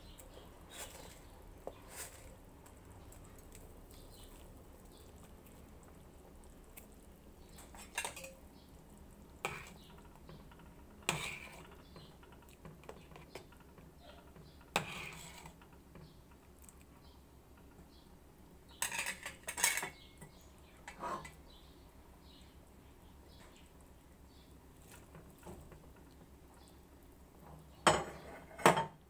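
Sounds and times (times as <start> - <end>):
broth boiling and bubbling: 0.4 - 18.3.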